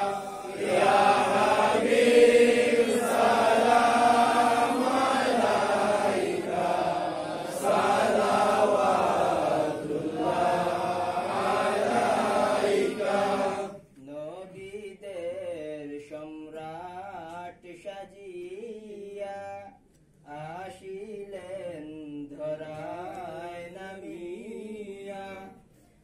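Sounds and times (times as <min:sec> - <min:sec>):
men singing together: 0:00.0 - 0:13.8
man singing alone: 0:14.0 - 0:25.6.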